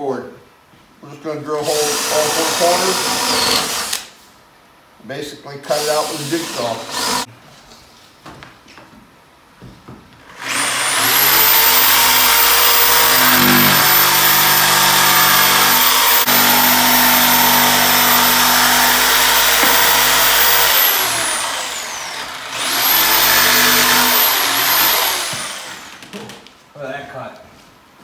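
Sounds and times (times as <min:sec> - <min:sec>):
jigsaw cutting wood: 0:01.7 - 0:04.1, 0:05.8 - 0:07.3, 0:10.3 - 0:26.2.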